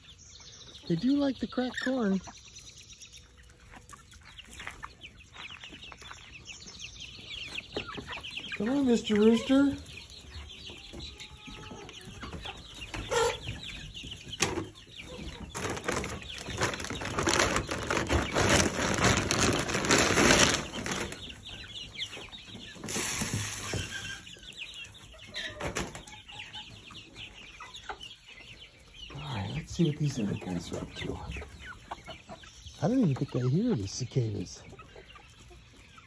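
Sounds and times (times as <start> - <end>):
chickens clucking: 0.0 - 36.0
loud rustling: 15.5 - 21.2.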